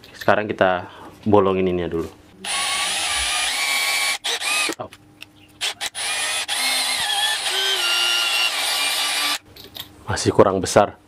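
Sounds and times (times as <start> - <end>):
cordless drill boring plastic: 2.5 - 4.8, 5.6 - 9.4.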